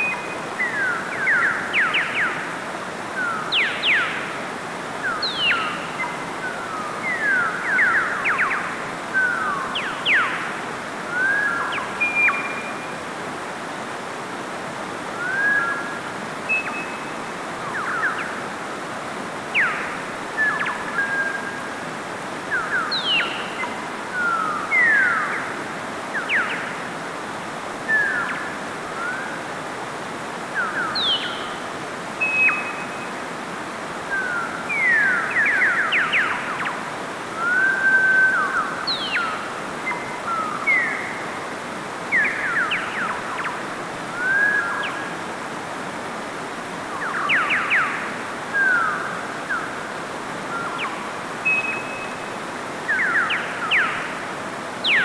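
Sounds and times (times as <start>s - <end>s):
stream flowing over boulders: 0.0s - 55.0s.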